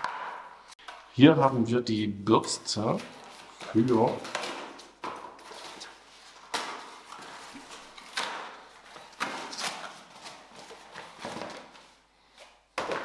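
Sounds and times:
cardboard packaging rustling: 3.0s - 12.0s.

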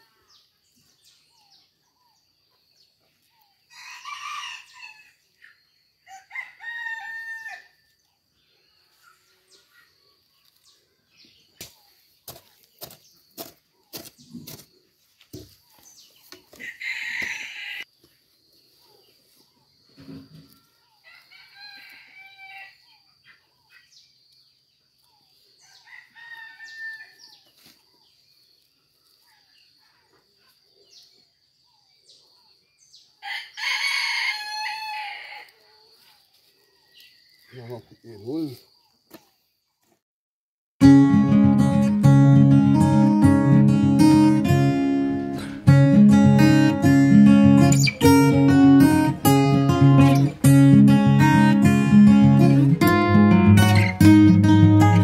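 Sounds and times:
rooster crowing: 3.7s - 5.2s, 6.1s - 7.8s, 16.6s - 17.9s, 20.6s - 22.9s, 25.6s - 27.3s, 33.2s - 35.6s
hoe chopping into soil: 11.6s - 15.6s.

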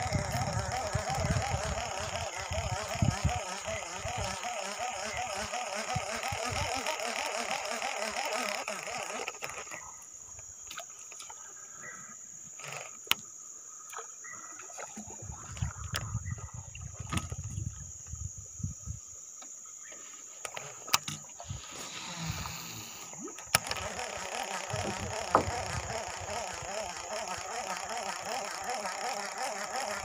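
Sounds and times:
high-pitched insect drone: 0.0s - 10.5s, 20.5s - 30.0s
sharp clicks: 23.3s - 30.0s.

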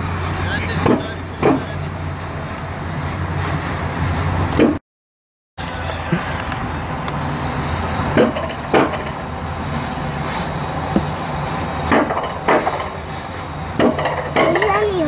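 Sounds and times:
coaster sled rumbling on rail: 0.0s - 4.8s, 5.6s - 15.0s
sharp knocks: 0.8s - 1.8s, 8.2s - 9.2s, 11.9s - 13.0s, 13.8s - 14.8s.

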